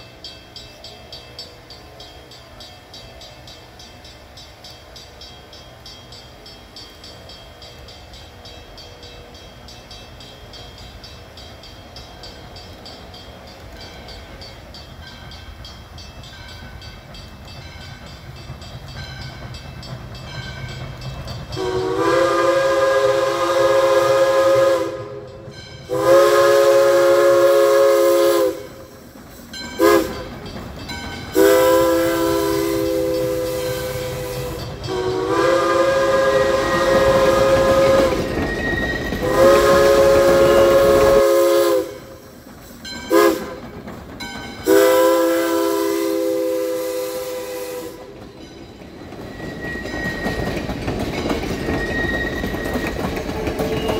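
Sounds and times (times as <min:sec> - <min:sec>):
low rumble of train: 0:00.0 - 0:53.9
steam locomotive whistle: 0:21.5 - 0:29.1, 0:29.8 - 0:30.3, 0:31.3 - 0:42.4, 0:43.1 - 0:43.7, 0:44.6 - 0:48.3, 0:49.1 - 0:50.7, 0:51.5 - 0:53.9.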